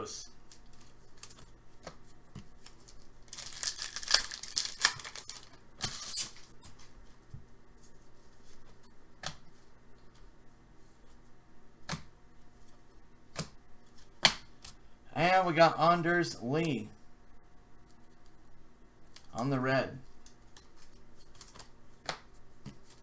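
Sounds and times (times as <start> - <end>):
wrapper rustling: 2.5 - 7.0
wrapper torn open: 2.9 - 6.5.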